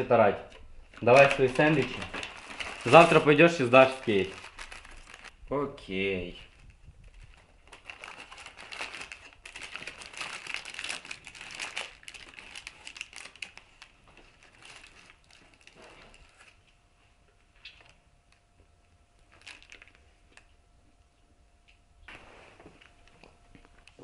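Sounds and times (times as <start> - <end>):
paper crinkling and rustling: 0.9 - 5.3, 6.4 - 16.7, 19.2 - 20.5.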